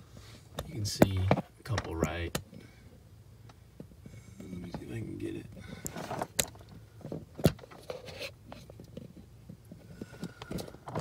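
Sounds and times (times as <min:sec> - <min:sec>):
hands handling plastic and wiring: 0:04.7 - 0:11.0.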